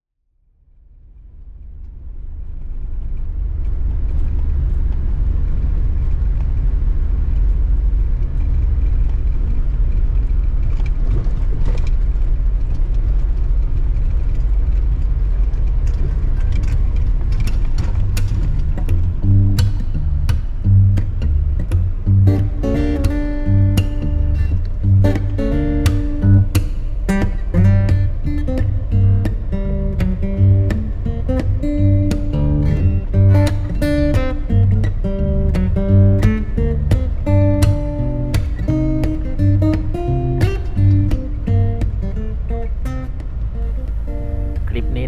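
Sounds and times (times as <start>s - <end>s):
vehicle rumble inside cab: 0.6s - 45.0s
guitar music: 18.2s - 45.0s.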